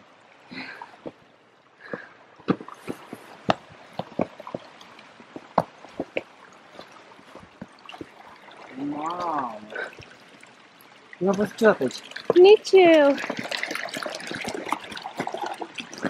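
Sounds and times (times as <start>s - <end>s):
stream trickling over rocks: 0.0s - 16.0s.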